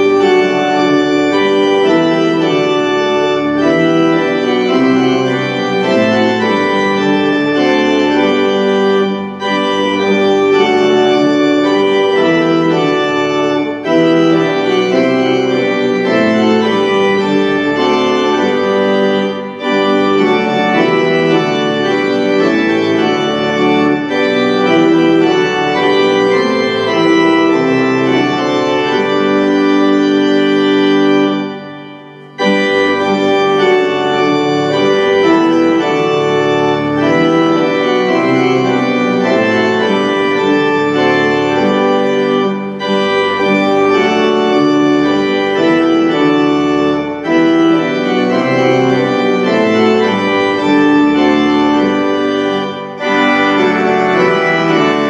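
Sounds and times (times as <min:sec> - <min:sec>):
organ playing a hymn: 0:00.0 - 0:55.0.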